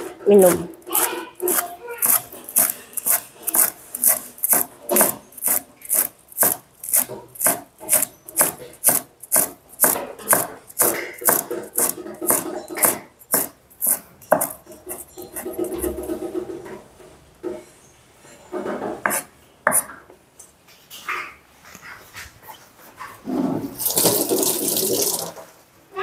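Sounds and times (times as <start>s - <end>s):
cleaver chopping on wooden board: 0.5s - 15.0s.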